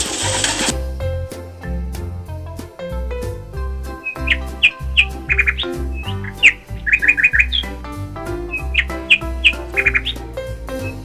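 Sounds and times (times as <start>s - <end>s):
baby chicks peeping: 0.0s - 0.7s, 4.0s - 7.9s, 8.5s - 11.0s
background music with bass line: 0.0s - 11.0s.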